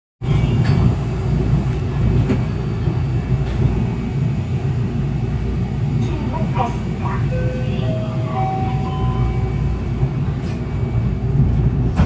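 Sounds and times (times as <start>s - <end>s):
low rumble inside train car: 0.2s - 12.0s.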